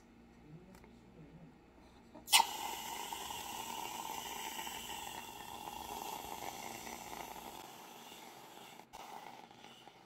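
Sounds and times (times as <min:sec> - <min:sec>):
whipped cream can hissing: 0:02.3 - 0:10.0.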